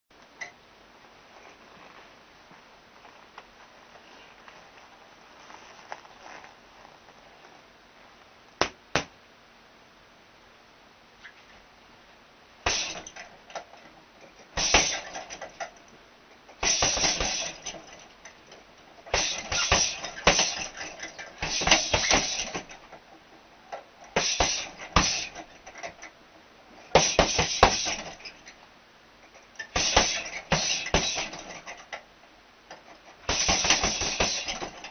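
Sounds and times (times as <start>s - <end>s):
boxing gloves striking punch bag: 8.6s - 9.1s, 14.6s - 15.0s, 16.6s - 17.6s, 19.1s - 20.8s, 21.4s - 22.7s, 24.2s - 25.4s, 27.0s - 28.1s, 29.8s - 31.4s, 33.3s - 34.8s.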